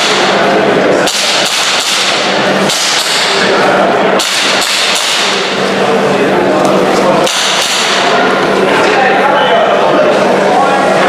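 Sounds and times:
airsoft pistol shots: 0:01.1 - 0:03.3, 0:04.2 - 0:05.4.

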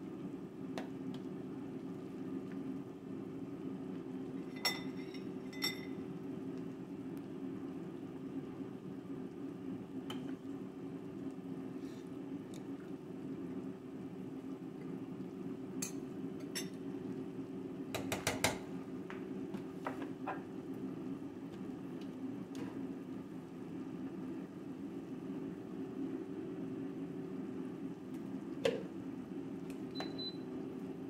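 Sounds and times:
spoon clinking against a pot: 0:04.4 - 0:06.0.

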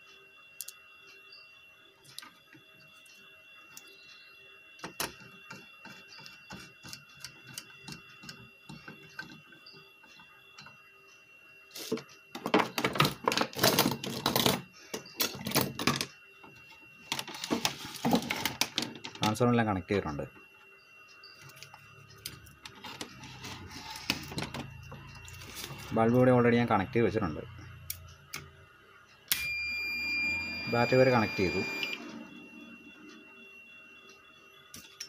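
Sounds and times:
clattering and rustling of cables: 0:11.8 - 0:19.4, 0:22.6 - 0:24.7.

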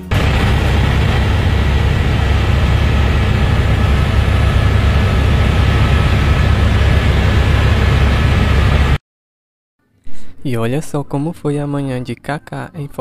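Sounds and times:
helicopter engine and rotor drone: 0:00.0 - 0:09.0.

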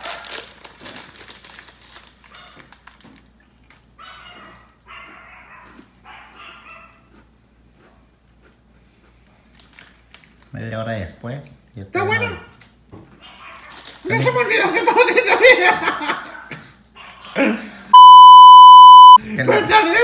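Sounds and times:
plastic wrapper crinkling: 0:00.0 - 0:03.9, 0:09.5 - 0:10.6, 0:13.6 - 0:14.1.

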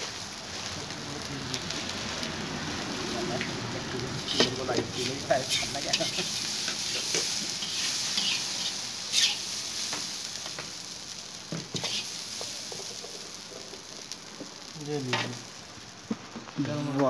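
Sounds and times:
rice sizzling in a wok: 0:00.0 - 0:17.0
metal spatula scraping a pan: 0:05.4 - 0:09.6, 0:11.7 - 0:12.2.

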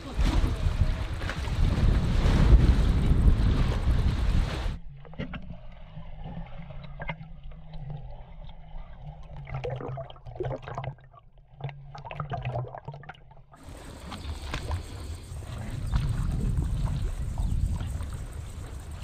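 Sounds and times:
wind buffeting microphone: 0:00.0 - 0:04.8, 0:13.6 - 0:19.0
bubbly crackles underwater: 0:00.0 - 0:19.0
muffled underwater hum: 0:00.0 - 0:19.0.

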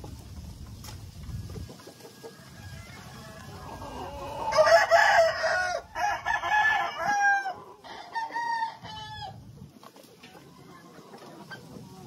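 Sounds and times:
roosters crowing: 0:01.2 - 0:09.6.

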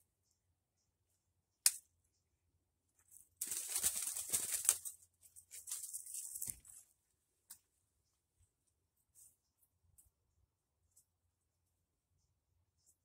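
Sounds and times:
crackling rustle: 0:03.0 - 0:06.9.

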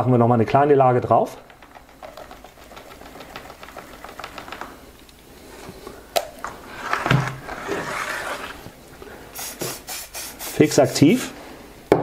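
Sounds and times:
light rapid clicks: 0:01.4 - 0:05.3
rustling hiss: 0:01.9 - 0:11.8.

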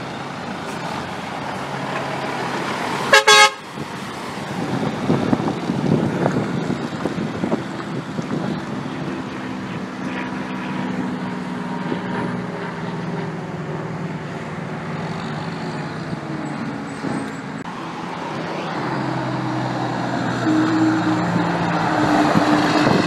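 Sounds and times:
approaching diesel truck engine: 0:00.0 - 0:23.0
cars passing: 0:00.0 - 0:23.0
truck engine droning: 0:00.0 - 0:23.0.

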